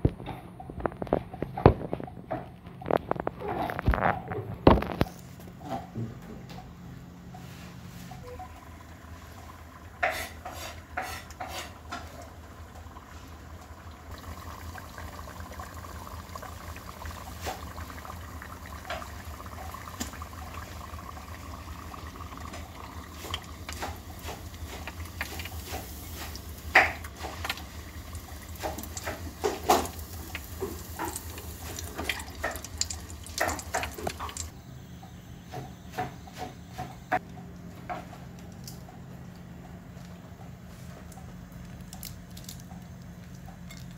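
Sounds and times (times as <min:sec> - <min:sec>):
steady low hum: 0:00.0 - 0:43.9.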